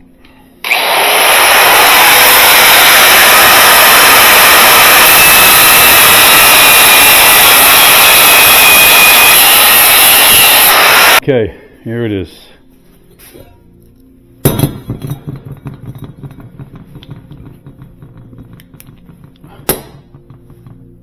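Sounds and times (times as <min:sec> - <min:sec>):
angle grinder cutting metal: 0:00.6 - 0:11.2.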